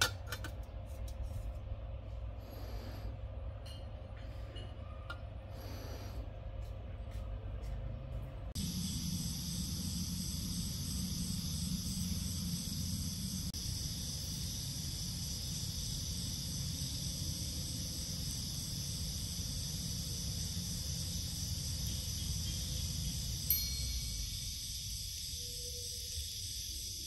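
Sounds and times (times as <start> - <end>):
low rumble: 1.2 - 26.7
insects trilling: 8.6 - 27.0.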